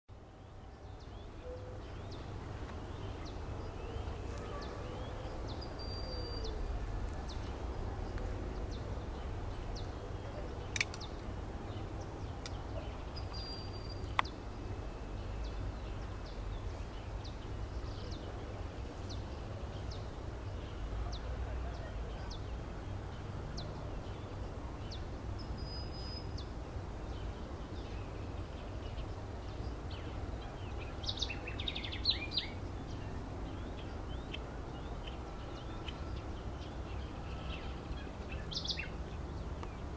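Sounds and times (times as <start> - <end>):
sharp clicks: 10.7 - 11.2.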